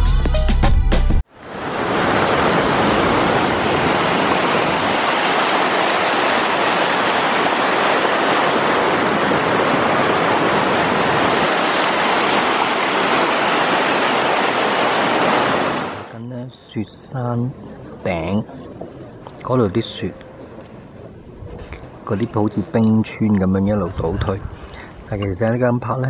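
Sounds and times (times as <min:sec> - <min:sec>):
stream rushing over rocks: 0:01.3 - 0:16.1.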